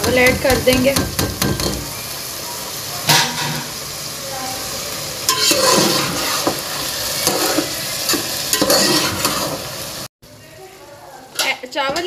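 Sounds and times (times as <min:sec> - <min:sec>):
syrup sizzling: 0:00.0 - 0:11.8
ladle scraping and knocking pot: 0:05.3 - 0:06.6, 0:07.2 - 0:09.6.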